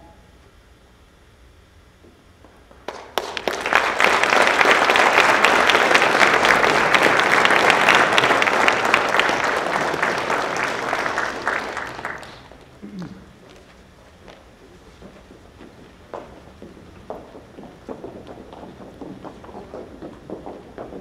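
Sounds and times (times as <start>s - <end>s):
audience applauding: 2.8s - 12.7s.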